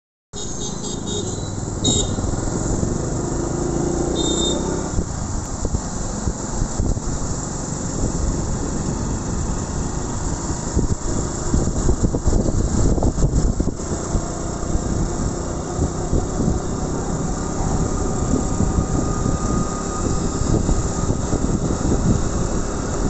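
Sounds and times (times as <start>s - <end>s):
motorcycle engine: 0.4s - 23.0s
road and wind noise: 0.4s - 23.0s
wind buffeting microphone: 4.8s - 23.0s.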